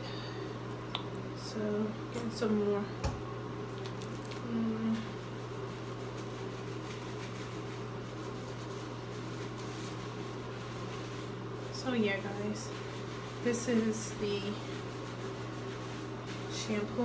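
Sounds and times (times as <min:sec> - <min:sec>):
steady low hum: 0:00.0 - 0:17.0
hands scrubbing hair: 0:03.7 - 0:17.0.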